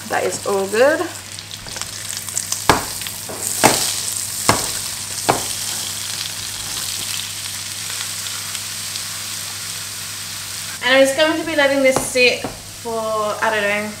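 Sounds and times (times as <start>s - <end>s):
grease sizzling in a frying pan: 0.0s - 13.9s
sharp knocks: 4.5s - 5.6s.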